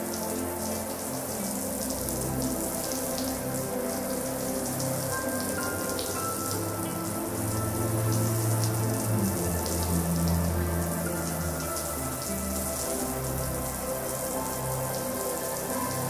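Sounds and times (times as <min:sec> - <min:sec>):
background music: 0:00.0 - 0:16.0.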